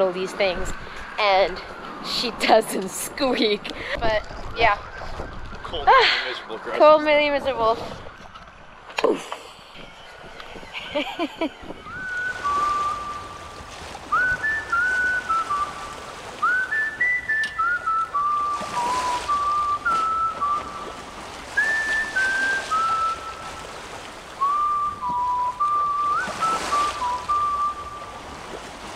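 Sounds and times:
soft rushing swells: 0.0s - 5.0s
whistled melody: 11.6s - 28.3s.

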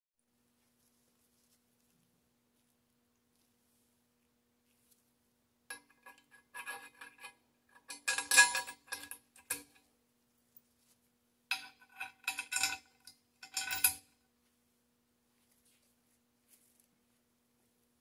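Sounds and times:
metal hardware clinking and scraping: 5.7s - 9.8s, 11.5s - 14.1s.

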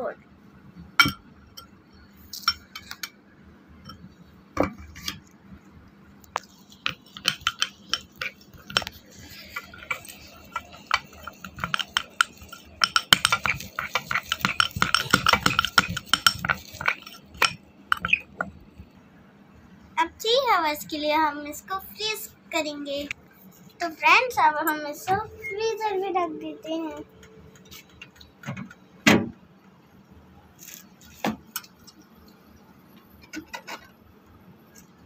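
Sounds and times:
spoon clinking against glass bowl: 7.0s - 18.2s.

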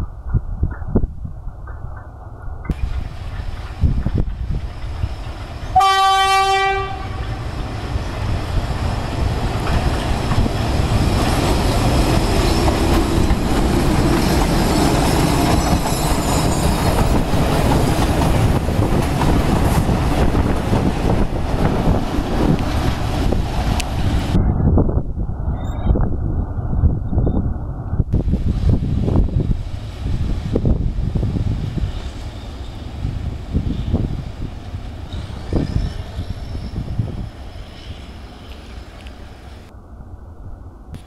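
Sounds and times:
train rumbling past: 0.0s - 41.0s
clickety-clack over rail joints: 0.2s - 5.8s, 7.9s - 24.4s
locomotive horn: 5.7s - 7.4s.

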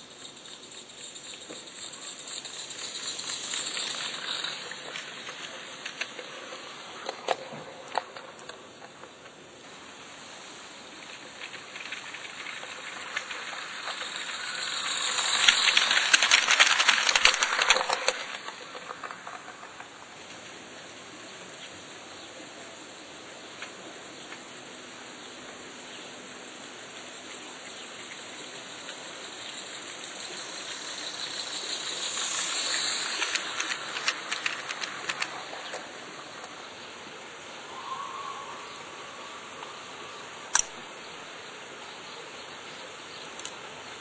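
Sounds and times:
steam hiss: 0.0s - 44.0s.

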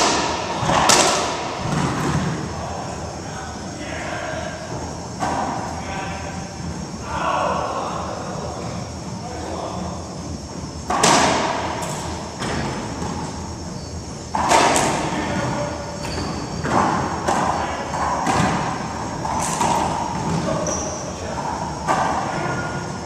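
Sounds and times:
racquet hitting ball: 0.0s - 2.5s, 10.8s - 13.4s, 14.3s - 20.8s, 21.8s - 22.8s.

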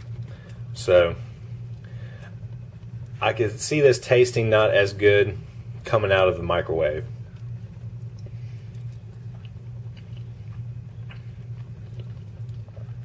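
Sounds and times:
steady low hum: 0.0s - 13.0s
person chewing food: 7.2s - 13.0s.

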